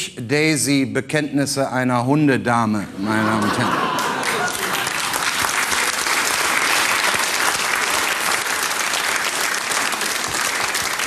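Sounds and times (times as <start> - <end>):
audience clapping: 3.4 - 11.0.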